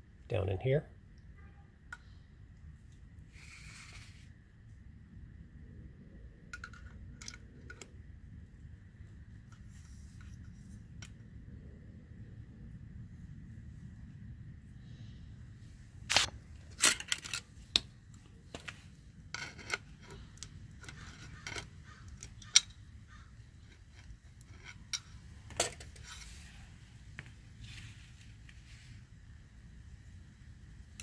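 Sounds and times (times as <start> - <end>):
metallic clicks and scrapes: 6.5 - 7.9, 16.1 - 28.6.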